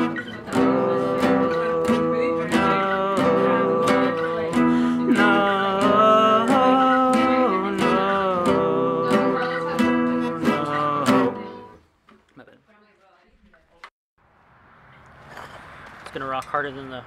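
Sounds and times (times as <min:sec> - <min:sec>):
person singing: 0:00.0 - 0:11.8
acoustic guitar strumming: 0:00.0 - 0:11.9.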